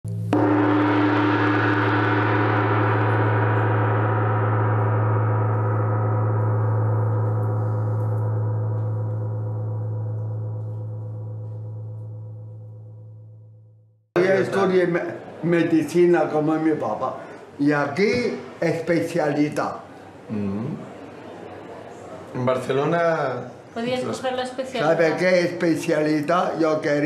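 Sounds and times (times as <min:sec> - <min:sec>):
gong ringing: 0:00.1 - 0:13.1.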